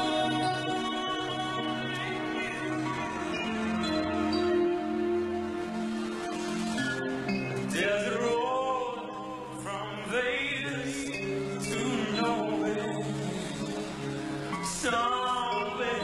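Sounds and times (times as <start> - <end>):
man singing a slow ballad: 0.0 - 3.7, 7.7 - 13.9, 14.5 - 16.0
sustained backing chords: 0.0 - 16.0.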